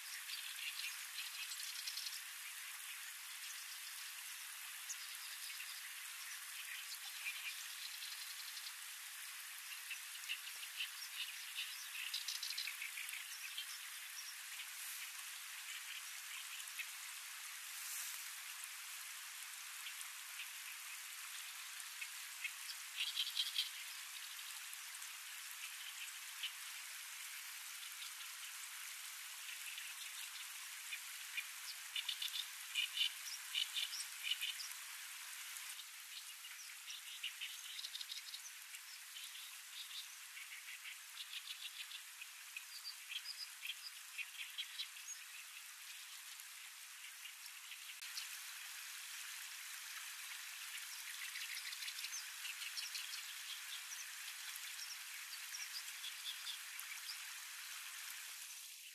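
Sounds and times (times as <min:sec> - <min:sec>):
steady outdoor hiss: 0:00.0 - 0:58.9.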